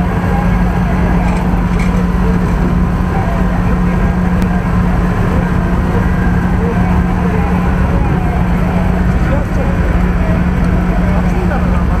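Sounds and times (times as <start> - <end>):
engine droning: 0.0 - 12.0.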